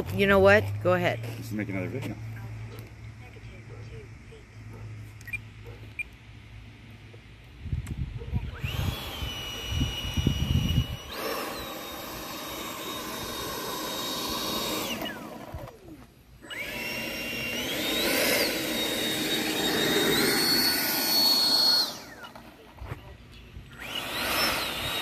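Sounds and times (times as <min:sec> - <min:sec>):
model jet fan whine: 0:07.4 - 0:25.0.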